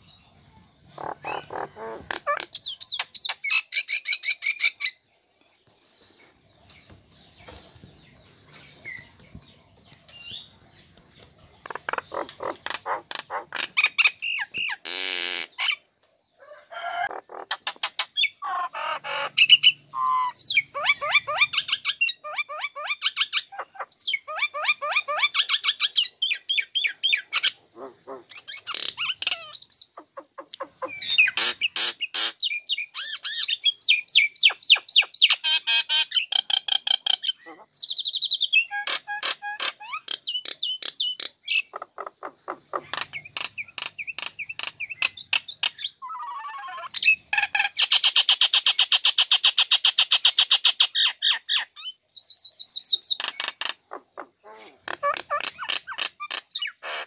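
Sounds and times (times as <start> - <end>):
bird singing chattering song: 0.0 - 16.4, 17.0 - 57.0
faint bird calls: 0.0 - 57.0.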